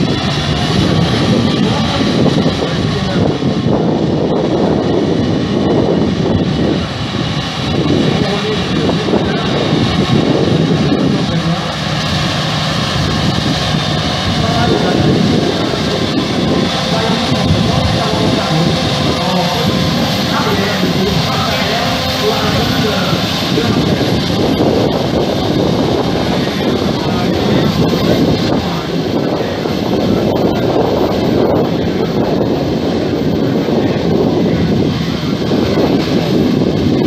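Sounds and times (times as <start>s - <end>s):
faint high whine: 6.0s - 32.8s.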